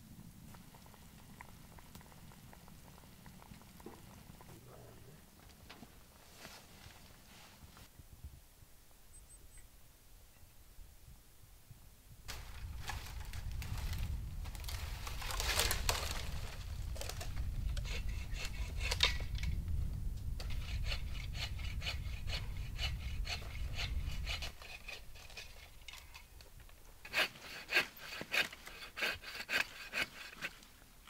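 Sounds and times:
hand saw cutting wood: 17.6 - 19.3, 20.4 - 25.8, 27.0 - 30.7.

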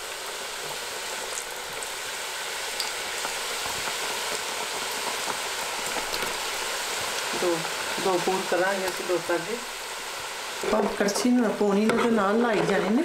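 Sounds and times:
dough sizzling in hot oil: 0.0 - 13.0
oil popping: 2.7 - 8.0.

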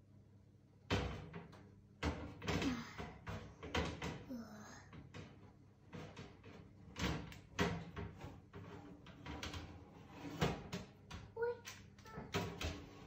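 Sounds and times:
kitchen knocks and bangs: 0.8 - 4.3, 4.9 - 11.3, 12.2 - 13.0.

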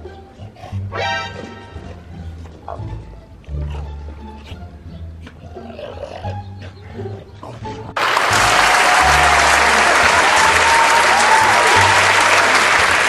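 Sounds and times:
background music: 0.0 - 13.0
crowd applauding: 8.0 - 13.0.

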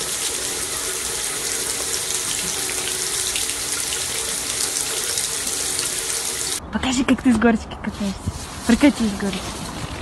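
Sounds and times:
tap water running into sink: 0.0 - 6.6.

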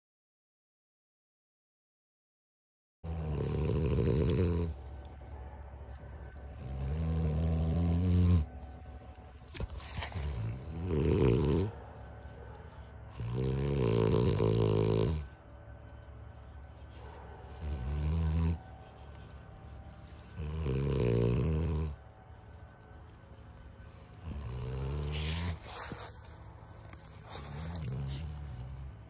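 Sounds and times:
dog snoring: 3.0 - 15.6, 16.9 - 22.3, 23.8 - 26.3, 26.9 - 29.0.

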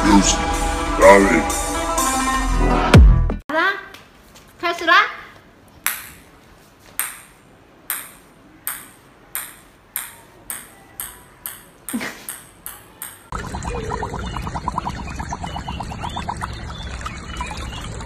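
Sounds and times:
ping-pong ball bouncing on tiles: 7.0 - 13.3.

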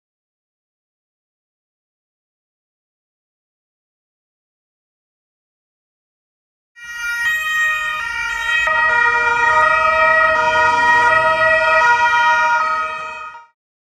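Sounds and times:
police sirens: 6.8 - 13.6.

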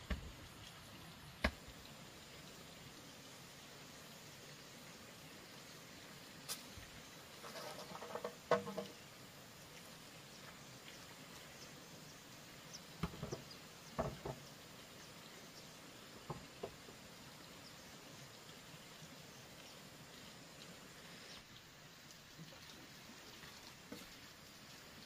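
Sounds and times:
soft steady hiss: 0.0 - 25.0
light knocks and taps: 7.6 - 9.0, 13.0 - 14.5, 16.2 - 16.9.

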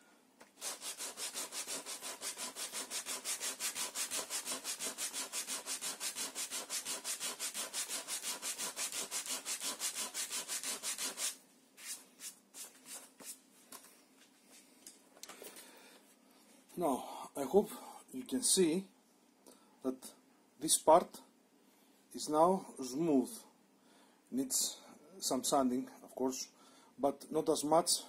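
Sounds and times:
sandpaper rubbing on wood: 0.6 - 13.4.

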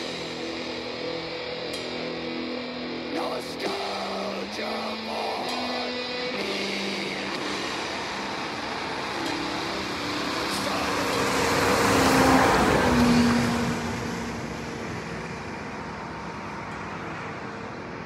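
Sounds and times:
vehicle passing by: 4.7 - 18.0.

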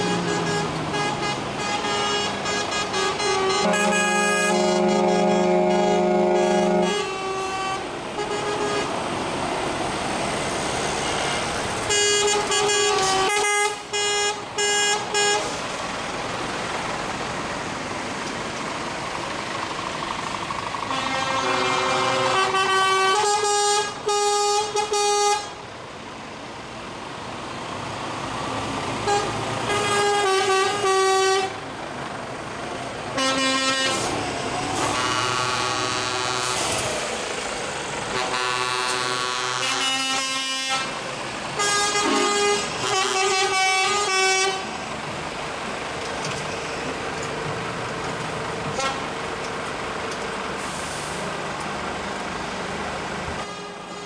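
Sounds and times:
truck air horn blasts: 0.0 - 9.0, 11.2 - 15.6, 20.9 - 25.6, 29.0 - 31.6, 33.2 - 34.2, 34.8 - 36.7, 38.1 - 41.0, 41.6 - 44.8, 48.7 - 49.1, 53.4 - 54.0
diesel engines running: 0.0 - 54.0.

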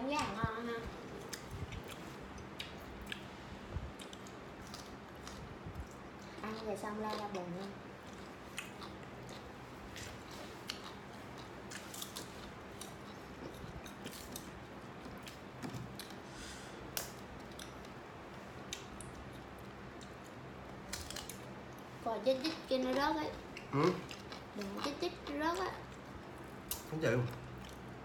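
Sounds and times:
low steady hum: 0.0 - 28.0
person chewing: 1.1 - 3.3, 4.0 - 16.2, 16.9 - 18.0, 18.6 - 20.3, 23.4 - 28.0
faint clicks and smacks: 18.6 - 21.8.

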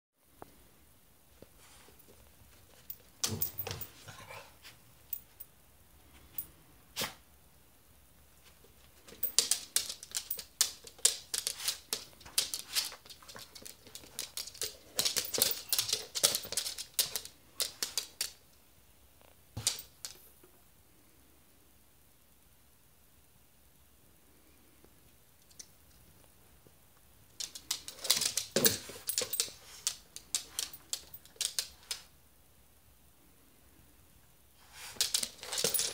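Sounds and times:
animal claws clicking on wooden floor: 9.1 - 18.4, 27.4 - 32.1, 34.9 - 35.9.

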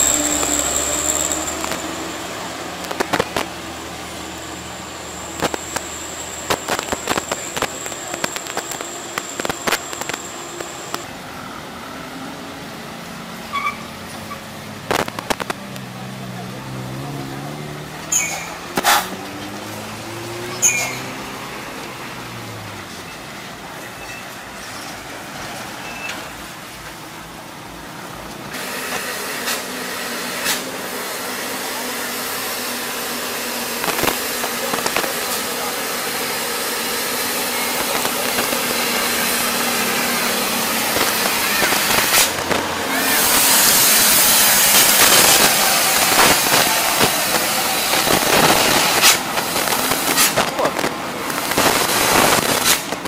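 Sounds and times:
truck diesel engine climbing: 0.0 - 29.0, 30.6 - 53.0
strong hiss: 28.6 - 53.0.

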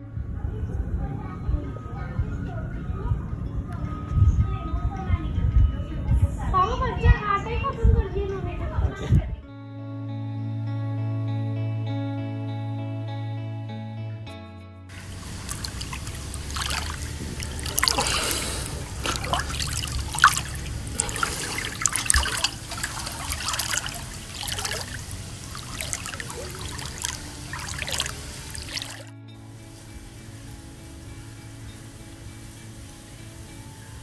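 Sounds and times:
soft background music: 0.0 - 34.0
small water splashes: 14.9 - 29.1
low steady hum: 14.9 - 34.0
pool water lapping: 14.9 - 34.0.

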